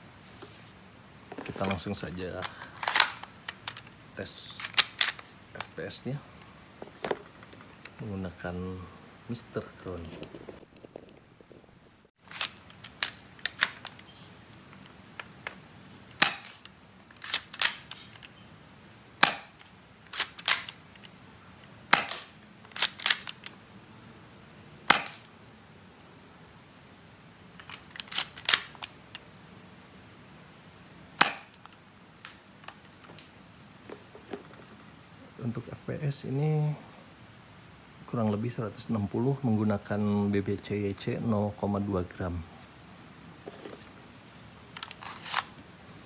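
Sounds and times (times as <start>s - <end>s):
airsoft pistol shots snapping: 16.2s - 16.6s, 19.2s - 19.6s, 21.9s - 23.2s, 24.9s - 25.3s, 31.2s - 31.6s
pistol slide clicks and clacks: 16.2s - 18.3s, 19.2s - 20.8s, 21.9s - 23.5s, 27.6s - 28.9s.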